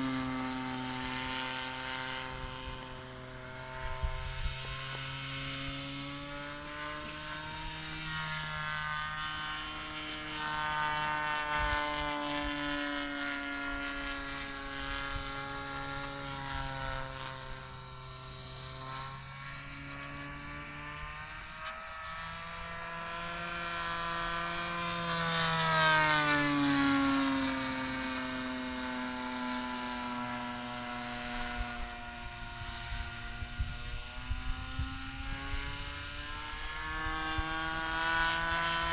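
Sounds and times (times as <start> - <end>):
model plane engine droning: 0.0 - 38.9.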